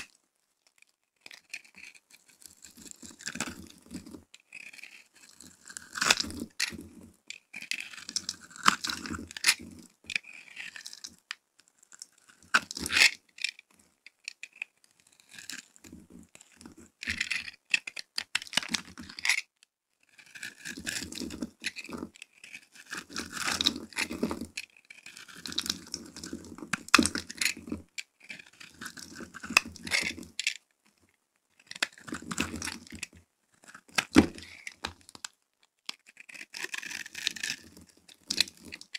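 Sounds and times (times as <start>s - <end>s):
metal blade scraping soap: 1.2s - 3.5s, 4.4s - 6.7s, 7.4s - 11.0s, 14.1s - 19.5s, 20.1s - 30.4s, 31.6s - 32.6s, 33.5s - 35.1s, 35.8s - 38.9s.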